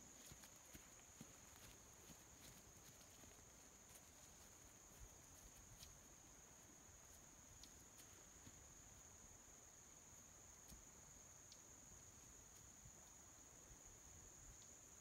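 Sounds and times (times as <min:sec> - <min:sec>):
soft ticks: 0:07.5 - 0:08.1, 0:11.5 - 0:11.7.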